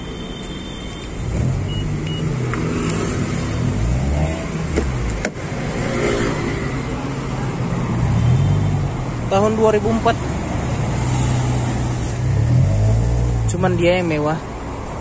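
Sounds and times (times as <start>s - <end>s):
traffic passing close by: 0.0s - 15.0s
short high beeps: 1.7s - 2.3s.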